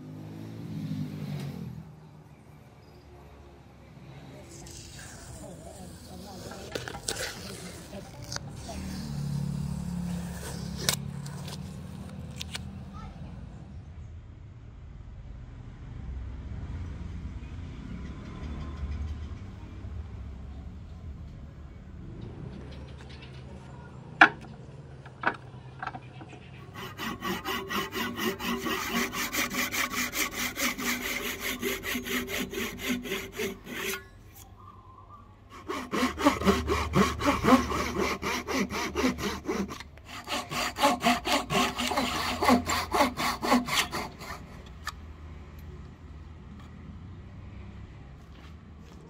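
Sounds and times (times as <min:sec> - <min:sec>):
hand saw cutting wood: 0:04.4 - 0:11.8, 0:26.6 - 0:34.5, 0:35.5 - 0:45.0.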